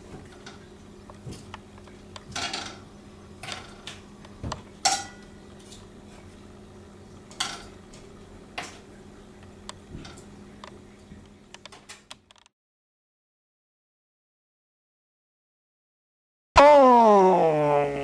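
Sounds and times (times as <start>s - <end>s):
dishes and utensils clinking: 2.3s - 2.8s, 4.8s - 5.8s, 7.3s - 8.8s.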